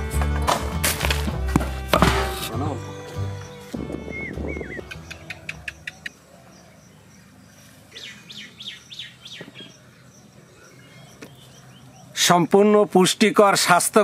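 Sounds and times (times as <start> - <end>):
small birds chirping: 2.6 - 13.3.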